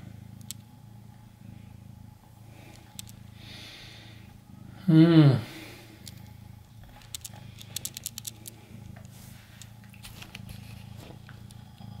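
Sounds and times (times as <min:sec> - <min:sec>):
cat purring: 0:00.0 - 0:12.0
kittens suckling clicks: 0:02.6 - 0:03.2, 0:06.0 - 0:11.6.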